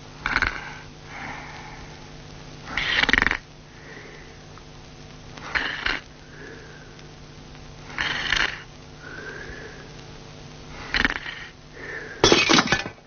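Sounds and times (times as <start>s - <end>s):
person snoring: 0.2s - 2.1s, 2.7s - 4.4s, 5.4s - 7.0s, 7.9s - 9.9s, 10.7s - 12.3s.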